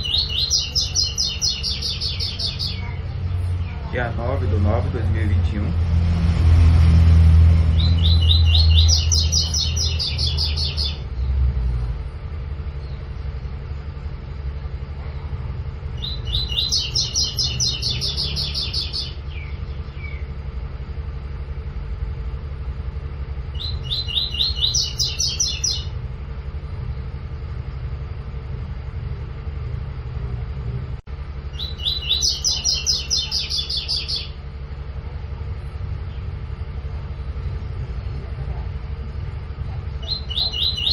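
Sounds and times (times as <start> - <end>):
bird singing rapid high notes: 0.0 - 4.9, 7.6 - 11.4, 16.0 - 20.4, 23.5 - 26.0, 31.5 - 34.4, 40.0 - 40.9
steady low rumble: 0.0 - 40.9.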